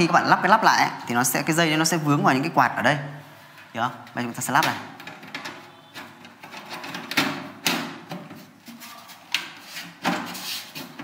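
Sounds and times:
metal panel knocking and scraping: 5.0 - 8.7, 9.4 - 11.0.

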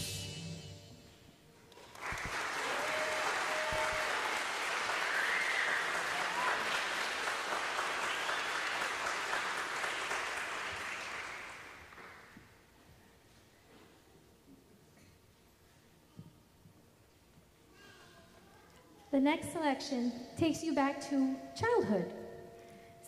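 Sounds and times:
audience applauding: 1.7 - 12.4.

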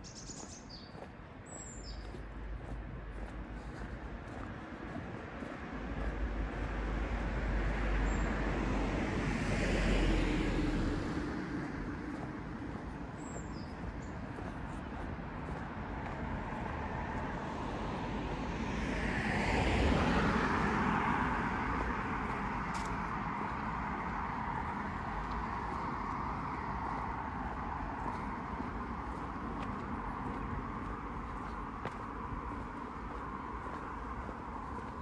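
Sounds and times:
steady road noise: 0.0 - 35.0
vehicles passing: 0.0 - 35.0.

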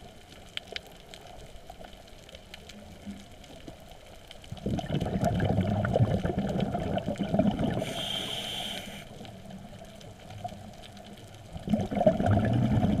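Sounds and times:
exhaled bubbles gurgling: 4.5 - 13.0
regulator inhalation hiss: 7.7 - 9.3.

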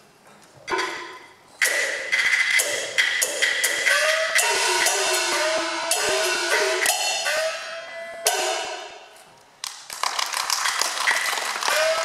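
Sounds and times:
cymbal strikes: 0.8 - 9.2
big cymbal crash: 1.7 - 9.2
gong strikes sliding in pitch: 3.9 - 9.1.

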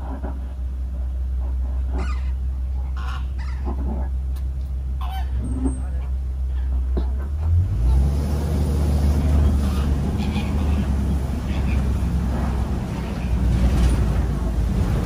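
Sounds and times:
truck engine droning: 0.0 - 15.0
flamingos honking: 1.8 - 4.2, 5.0 - 7.1, 9.2 - 13.6.

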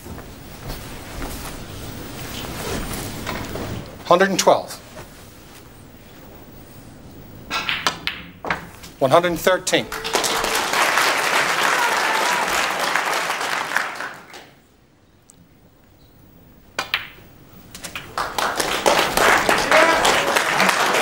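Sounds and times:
cue striking ball: 7.5 - 8.7, 16.8 - 17.3
ball knocking ball: 7.5 - 8.9, 16.8 - 17.2
crowd applauding: 9.7 - 14.6, 17.9 - 21.0.

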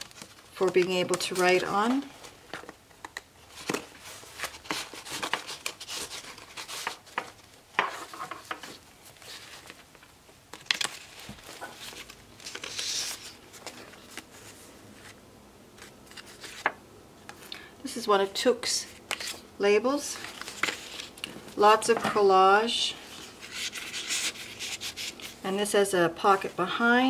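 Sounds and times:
sliding paper rustle: 0.0 - 1.7, 3.5 - 15.2, 20.1 - 21.4, 23.0 - 25.4
paper pages rustling: 0.0 - 2.8, 3.5 - 15.2, 15.8 - 17.4, 20.1 - 22.2, 23.0 - 25.4.

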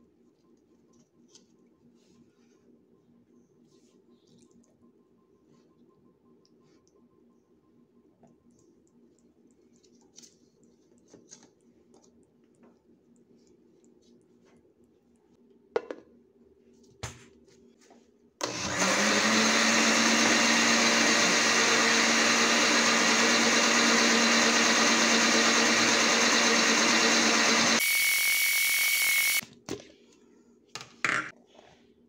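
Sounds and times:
blender motor running: 18.4 - 29.4.

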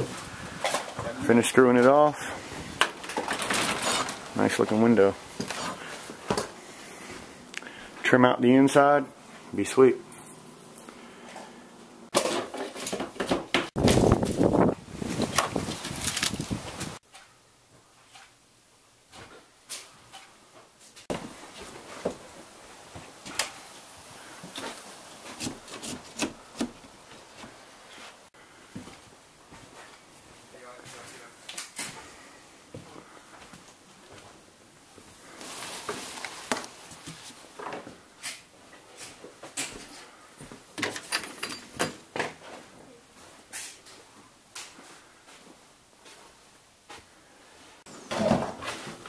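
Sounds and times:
scraping on wood: 24.5 - 28.2.

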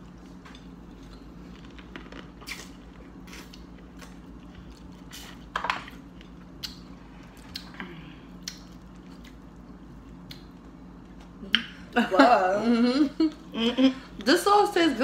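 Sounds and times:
faint steady hum: 0.0 - 15.0
chewing: 0.1 - 11.4
wet mouth smacks: 8.4 - 8.7.

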